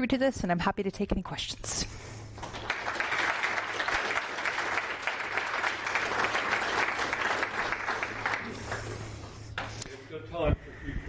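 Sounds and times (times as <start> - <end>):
audience applauding: 2.4 - 9.3.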